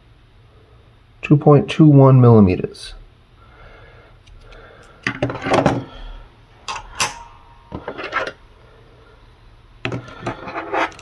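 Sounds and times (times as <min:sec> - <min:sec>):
metal tools knocking on wood: 0:09.9 - 0:10.4.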